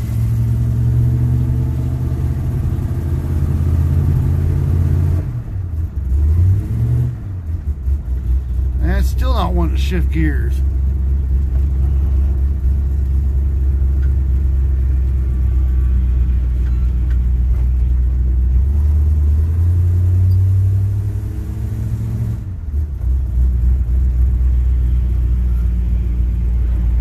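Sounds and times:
pickup engine droning while driving: 0.0s - 27.0s.

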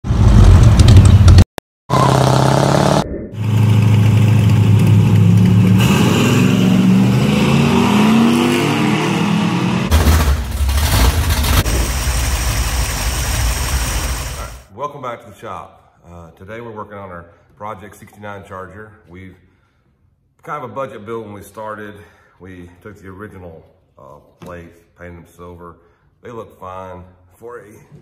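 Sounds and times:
car accelerating: 1.9s - 13.1s
car engine rumble: 2.0s - 8.0s, 9.2s - 14.6s
rough low engine rumble: 3.4s - 7.1s, 9.9s - 14.7s.

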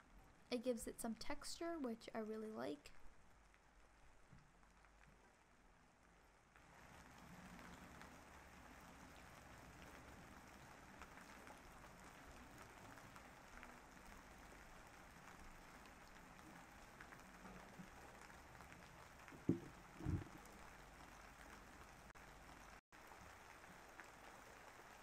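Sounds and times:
steady rain falling: 1.7s - 25.0s
low thumps: 19.4s - 20.4s.

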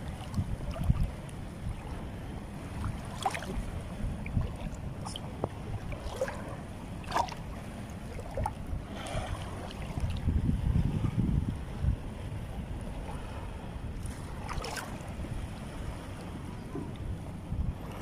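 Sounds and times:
feet wading and splashing: 0.0s - 1.1s, 2.6s - 10.2s, 14.0s - 16.0s
wind rumble on microphone: 0.0s - 18.0s.

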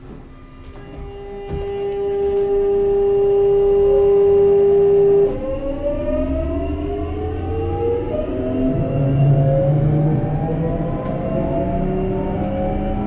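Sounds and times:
electric train inverter whine: 0.0s - 13.0s
traction motors humming: 0.0s - 13.0s.

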